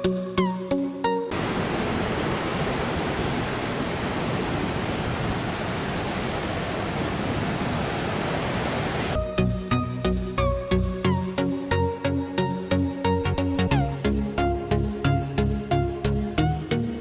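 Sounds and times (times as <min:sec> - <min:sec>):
ocean surf breaking: 0:01.3 - 0:09.2.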